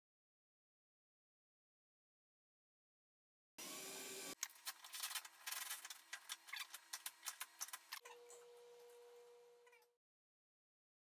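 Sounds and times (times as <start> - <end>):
faint steady hum: 5.8 - 10.0.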